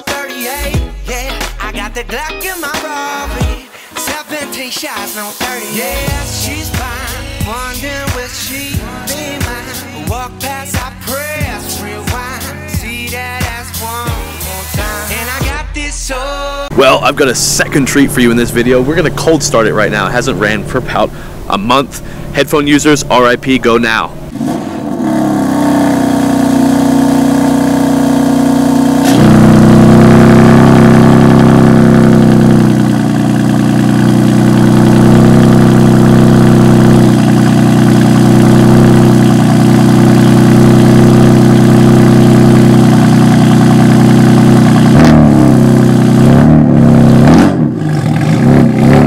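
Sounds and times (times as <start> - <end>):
car engine idling and revving: 5.7 - 49.0.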